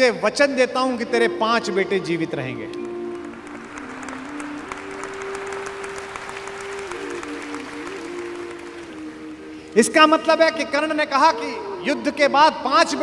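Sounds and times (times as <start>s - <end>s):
music of long held notes: 0.8s - 12.2s
audience applauding: 2.7s - 9.8s.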